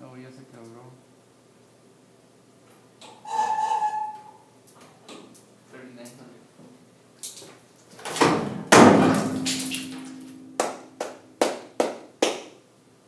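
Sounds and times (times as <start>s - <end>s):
concrete beam cracking: 8.1s - 10.8s.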